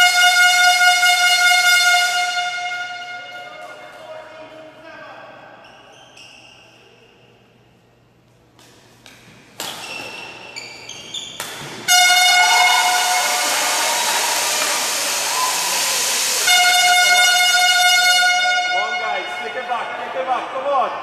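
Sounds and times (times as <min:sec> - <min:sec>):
air horn blast: 0:00.0 - 0:04.3, 0:11.9 - 0:20.2
crowd noise: 0:11.6 - 0:17.5, 0:18.7 - 0:21.0.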